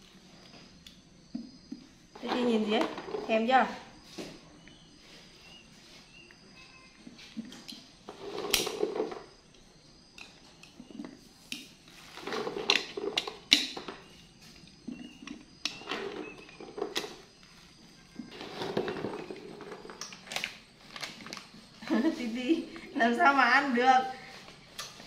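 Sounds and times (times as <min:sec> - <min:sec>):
plastic bags rustling: 0:18.2 - 0:22.6.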